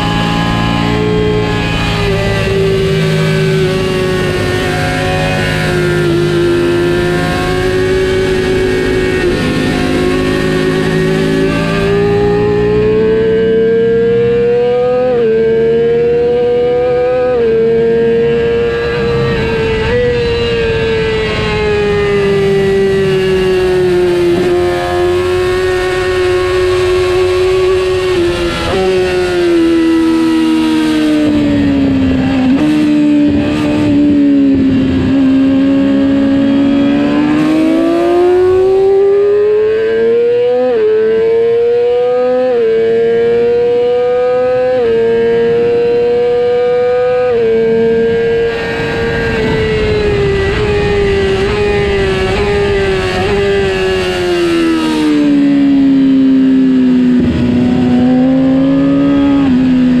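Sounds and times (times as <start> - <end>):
motorcycle engine at high revs: 0.0 - 60.0
wind rush: 18.5 - 36.9, 47.7 - 60.0.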